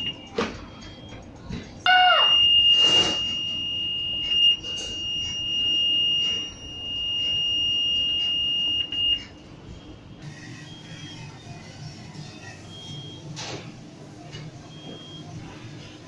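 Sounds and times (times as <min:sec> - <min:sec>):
high-pitched buzzer alert tone: 0:01.9 - 0:08.9.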